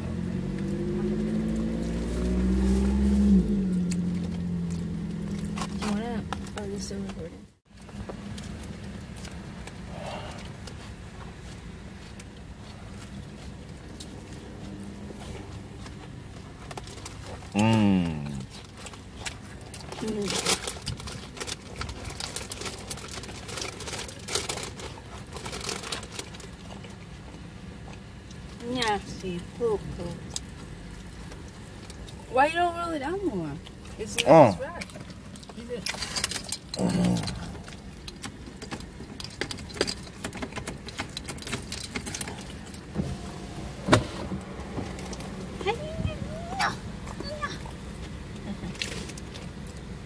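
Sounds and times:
low hum inside car: 0.0s - 50.0s
chewing crispy food: 7.7s - 28.6s, 29.8s - 32.3s, 33.6s - 42.9s, 47.8s - 50.0s.

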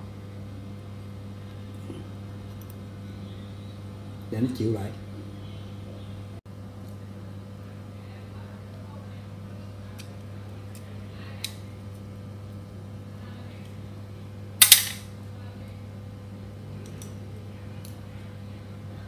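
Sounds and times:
sharp metal clack: 14.6s - 15.1s.

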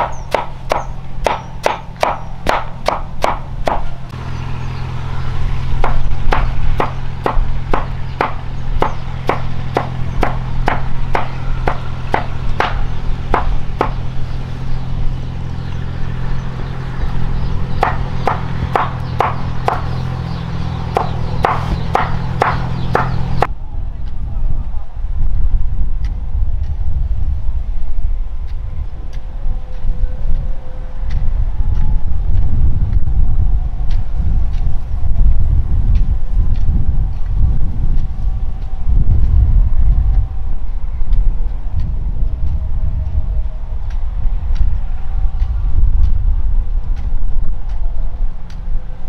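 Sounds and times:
cleaver chopping on wooden board: 0.0s - 4.0s, 5.8s - 14.0s, 17.8s - 20.0s, 20.9s - 23.5s.

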